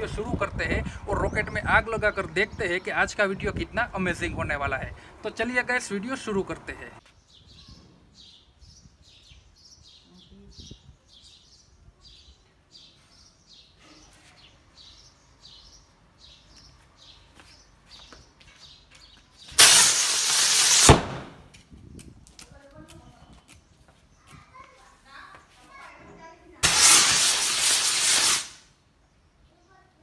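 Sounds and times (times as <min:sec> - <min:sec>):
faint bird chirps: 0:07.2 - 0:15.8
rocket thrust hissing: 0:19.6 - 0:21.4, 0:26.6 - 0:28.7.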